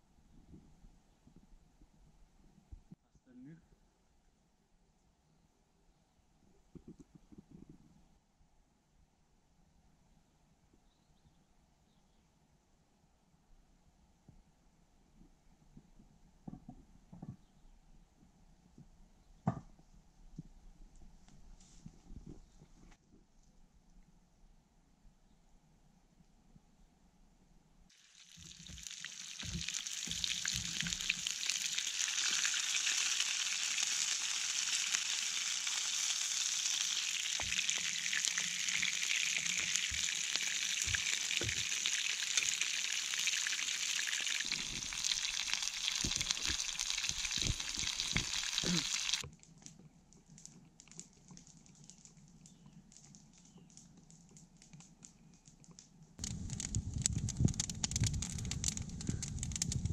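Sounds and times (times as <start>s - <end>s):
meat sizzling in a frying pan: 27.9s - 49.2s
faint clicks: 49.2s - 59.9s.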